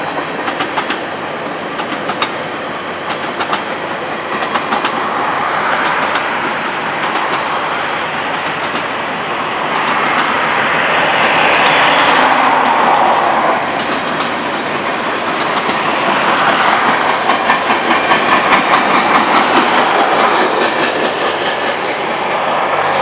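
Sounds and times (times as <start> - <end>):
freight train cars rolling past: 0.0 - 23.0
steel wheels clicking over rail joints: 0.1 - 1.0, 1.8 - 2.4, 3.0 - 9.0, 11.4 - 22.2.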